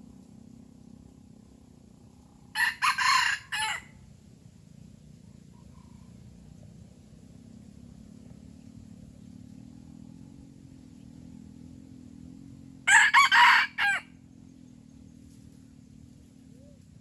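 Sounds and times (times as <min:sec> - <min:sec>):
faint low hum: 0:00.0 - 0:17.0
rooster crowing: 0:02.5 - 0:04.0, 0:12.8 - 0:14.2.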